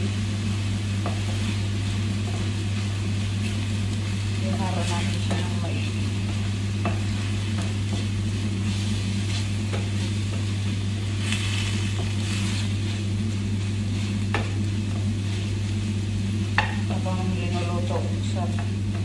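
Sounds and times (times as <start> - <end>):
food sizzling in a frying pan: 0.0 - 19.0
wooden spoon scraping a pan: 1.0 - 15.9
spoon knocking on pan: 6.3 - 8.1, 16.6 - 16.8.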